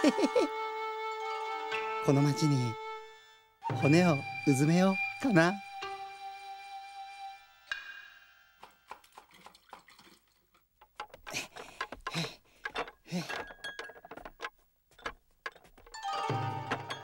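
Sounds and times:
bowls and cups rattling and clinking: 8.9 - 17.0.

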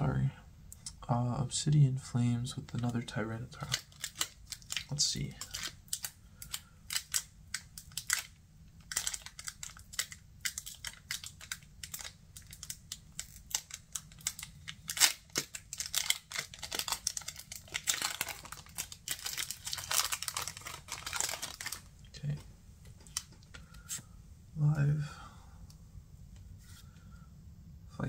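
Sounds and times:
foil wrapper crinkling: 2.7 - 22.0.

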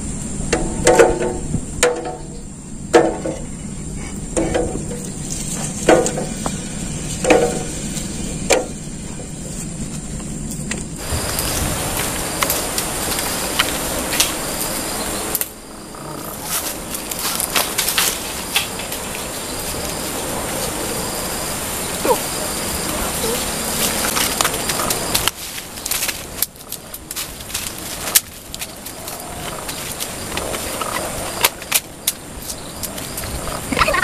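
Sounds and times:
steady hiss: 0.0 - 34.0.

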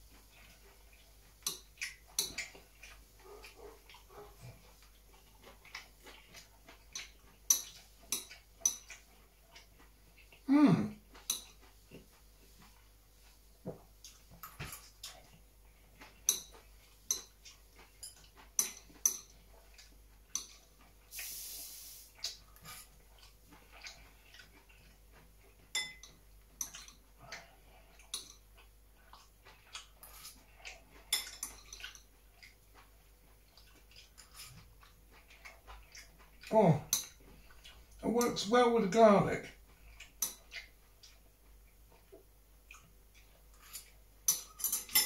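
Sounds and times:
brief hiss: 21.2 - 22.1.

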